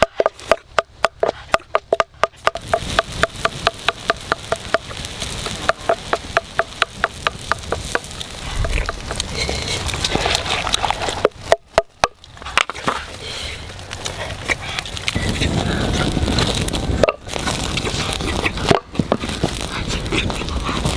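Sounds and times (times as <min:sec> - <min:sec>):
pestle knocking in mortar: 0:00.0 - 0:04.8
rough hiss: 0:01.2 - 0:11.5, 0:12.3 - 0:20.9
low rumble: 0:13.1 - 0:20.9.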